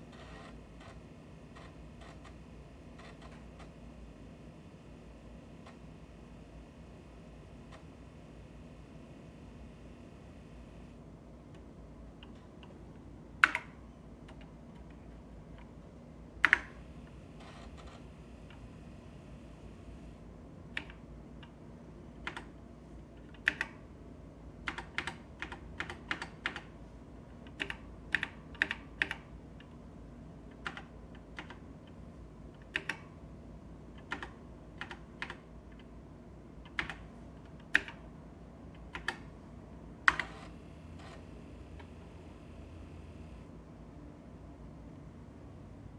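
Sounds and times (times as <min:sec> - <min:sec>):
keyboard keystroke clicks: 0:13.4 - 0:15.7, 0:16.4 - 0:16.8, 0:20.7 - 0:21.6, 0:22.2 - 0:22.5, 0:23.2 - 0:23.8, 0:24.6 - 0:26.8, 0:27.4 - 0:29.8, 0:30.5 - 0:33.2, 0:33.9 - 0:35.9, 0:36.6 - 0:38.0, 0:38.7 - 0:39.3, 0:40.0 - 0:40.3.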